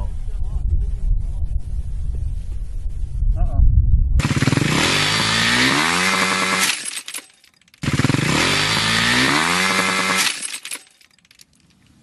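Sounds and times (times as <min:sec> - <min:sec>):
engine revving high: 0:04.2 - 0:06.9, 0:07.8 - 0:10.6
rattling clicks of engine dying: 0:06.0 - 0:11.8.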